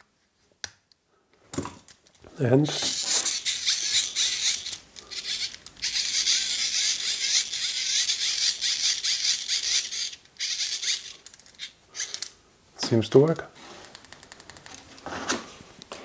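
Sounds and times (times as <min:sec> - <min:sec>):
hand-crank flashlight whirring: 0:02.7 - 0:12.3.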